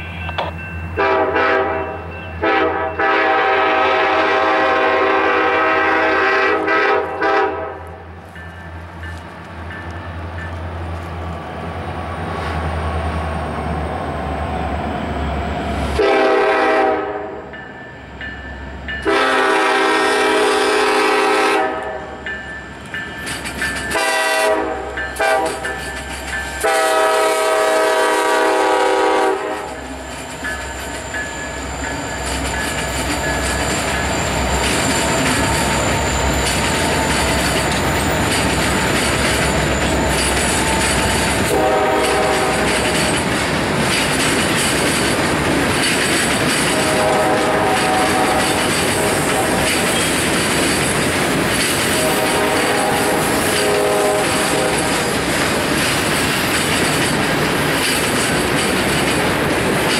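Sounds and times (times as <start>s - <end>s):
locomotive air horn blasts: 1.0s - 7.9s, 16.0s - 17.5s, 19.0s - 22.2s, 23.9s - 25.7s, 26.6s - 29.9s, 41.2s - 43.0s, 46.7s - 49.6s, 52.0s - 55.1s.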